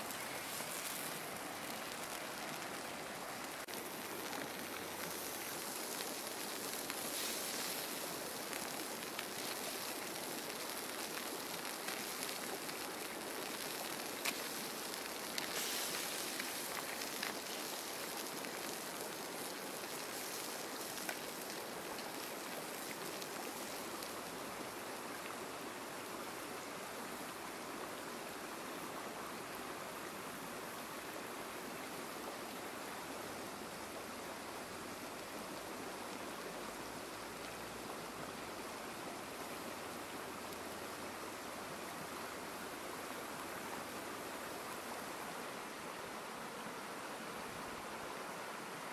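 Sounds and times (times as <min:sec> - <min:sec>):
food sizzling in hot oil: 0:05.0 - 0:24.0.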